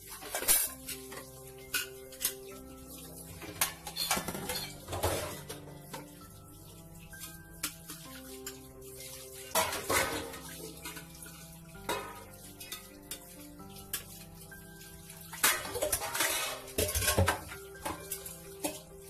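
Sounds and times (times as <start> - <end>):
background music: 0.0 - 19.0
tap water running into sink: 0.0 - 19.0
steel dishes clinking: 0.1 - 2.5, 3.4 - 6.1, 9.5 - 11.2, 11.8 - 13.3, 15.4 - 19.0.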